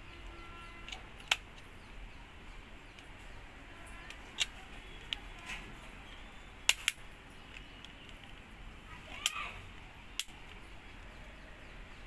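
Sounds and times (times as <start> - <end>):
sharp plastic clicks: 0.8 - 1.7, 4.0 - 5.7, 6.6 - 8.5, 9.1 - 10.7.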